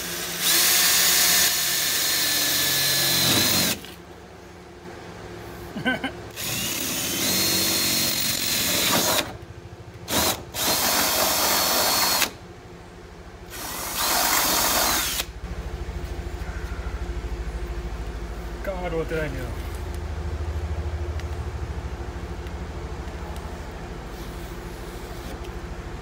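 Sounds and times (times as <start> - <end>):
cordless drill whining: 0.0 - 4.0, 6.4 - 9.3, 10.1 - 12.4, 13.5 - 15.3
low pulsing rumble: 15.1 - 26.0.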